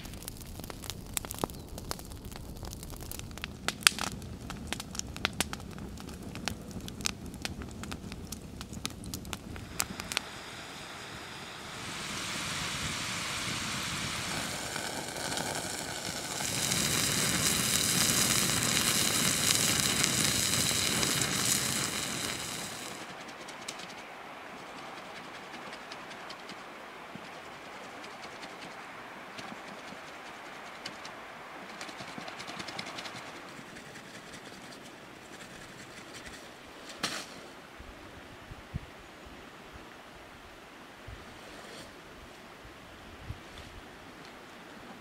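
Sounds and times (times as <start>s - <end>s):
wood fire crackling and popping: 0.0s - 36.4s
fries sizzling in oil: 9.2s - 23.1s.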